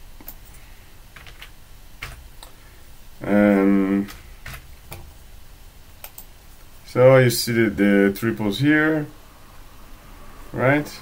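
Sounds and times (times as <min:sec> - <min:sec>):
keyboard keystrokes clicking: 0:01.2 - 0:02.6
person hesitation sound: 0:03.2 - 0:04.3.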